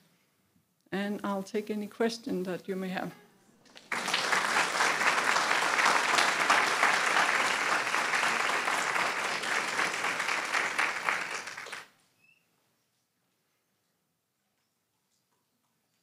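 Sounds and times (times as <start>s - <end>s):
audience applauding: 3.7s - 11.9s.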